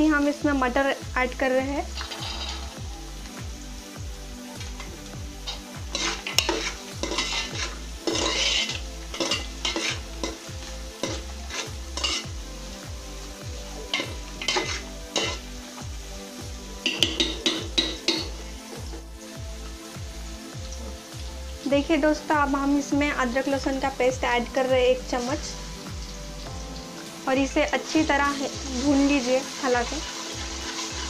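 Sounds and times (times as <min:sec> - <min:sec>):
vegetables sizzling: 0:00.0 - 0:31.0
spoon scraping metal pot: 0:02.0 - 0:02.8, 0:05.5 - 0:12.3, 0:13.9 - 0:15.5, 0:16.9 - 0:18.3.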